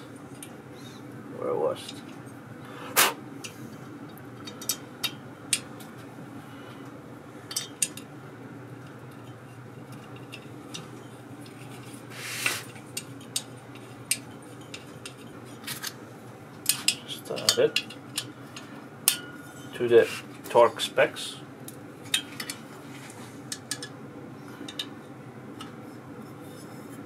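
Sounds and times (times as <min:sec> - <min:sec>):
low steady hum: 0:00.0 - 0:27.0
scraping rustle: 0:11.5 - 0:12.8.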